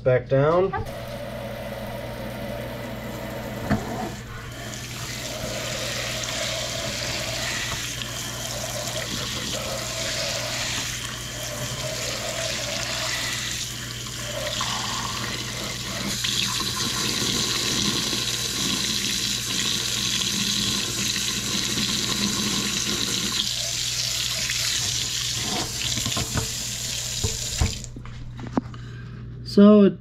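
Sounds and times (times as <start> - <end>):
faucet running into metal sink: 0.8 - 27.9.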